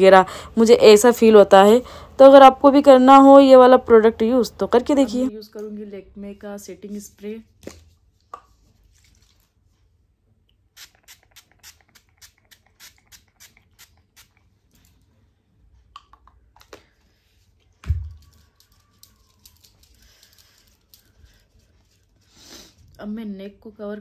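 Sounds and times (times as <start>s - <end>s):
pump spray bottle spritzing: 10.7s - 14.5s.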